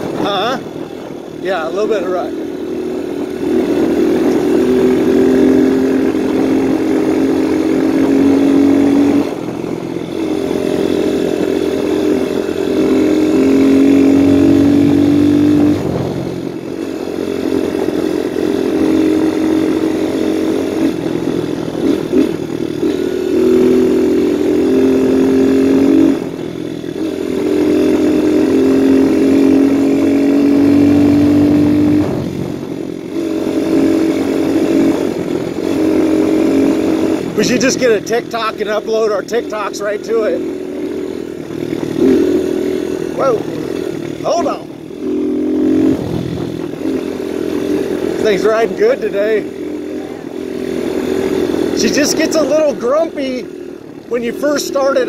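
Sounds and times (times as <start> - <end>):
dirt bike engine running: 0.0 - 55.0.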